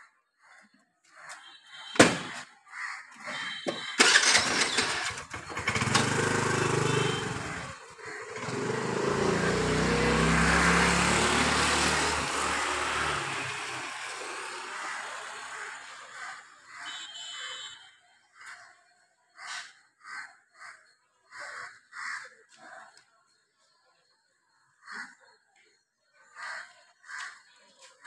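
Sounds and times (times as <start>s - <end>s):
motor engine running: 4.0s - 16.0s.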